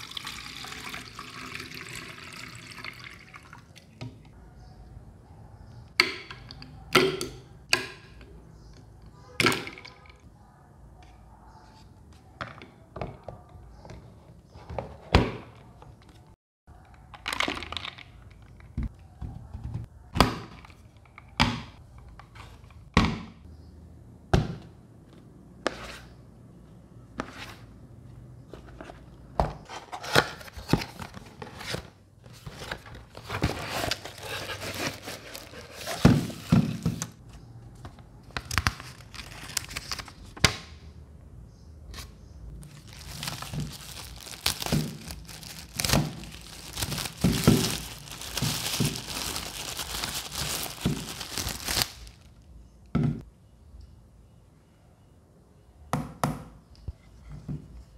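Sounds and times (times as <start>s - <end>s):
plastic wrap crinkling and tearing: 33.2s - 36.5s, 38.5s - 40.4s, 42.6s - 52.4s.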